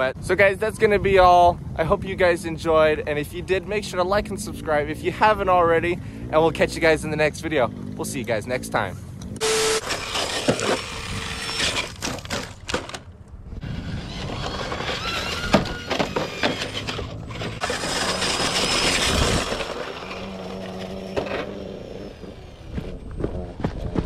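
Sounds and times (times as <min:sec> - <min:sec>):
toy truck crashing over rocks: 0:09.4 - 0:22.3.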